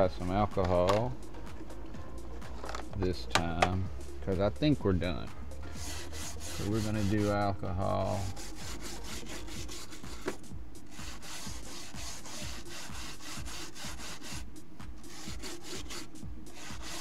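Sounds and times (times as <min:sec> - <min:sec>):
pad rubbing on metal rails: 0:05.7 - 0:17.0.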